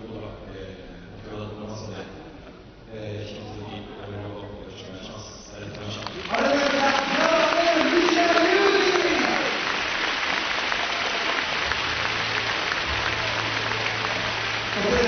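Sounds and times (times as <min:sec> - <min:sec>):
crowd applauding: 0:05.6 - 0:15.0.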